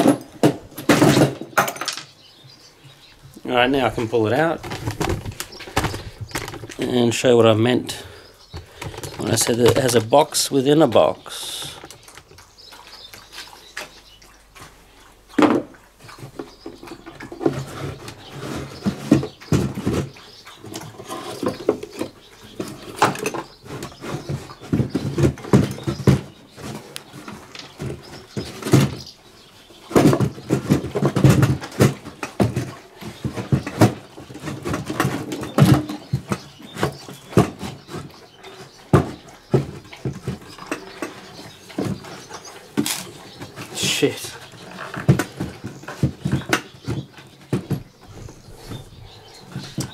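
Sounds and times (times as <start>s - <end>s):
wooden case knocking and scraping: 0.0s - 2.1s, 3.4s - 7.0s, 15.4s - 43.8s, 44.4s - 49.9s.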